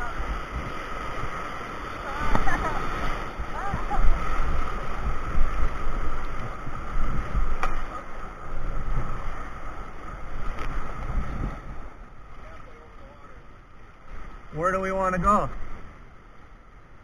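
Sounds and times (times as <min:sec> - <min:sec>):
wind buffeting microphone: 0:00.0 - 0:12.3
whitewater rapids rushing: 0:00.0 - 0:15.6.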